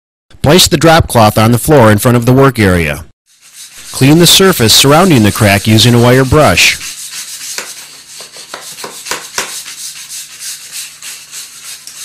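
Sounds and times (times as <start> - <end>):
wire brush scrubbing concrete: 3.3 - 12.0.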